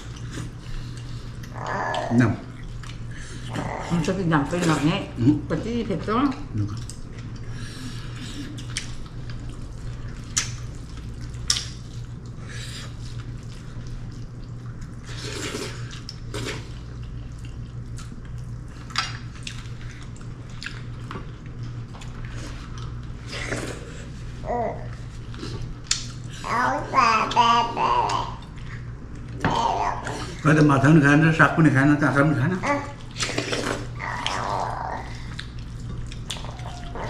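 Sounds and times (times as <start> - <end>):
slurping: 15.1 - 16.8, 33.1 - 37.0.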